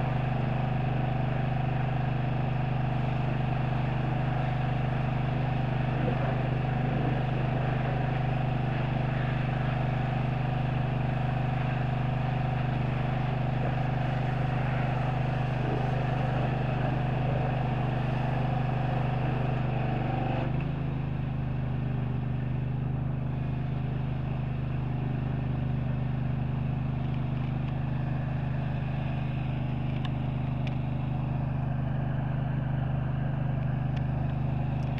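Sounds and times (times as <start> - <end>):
engine idling: 0.0 - 34.9
high whine: 2.9 - 10.2, 12.4 - 19.7.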